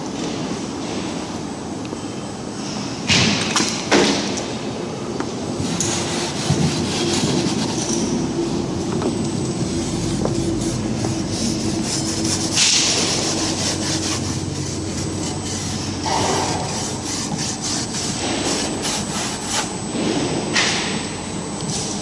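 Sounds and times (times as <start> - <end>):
scraping and rubbing: 5.6 - 8.2, 9.6 - 19.8.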